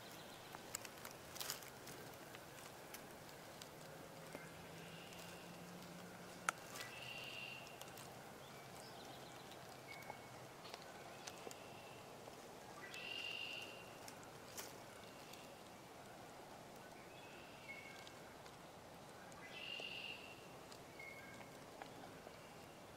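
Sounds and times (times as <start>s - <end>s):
faint bird calls: 3.3s - 16.2s, 16.8s - 22.9s
short high bird calls: 6.7s - 7.8s, 12.8s - 14.0s, 19.4s - 21.4s.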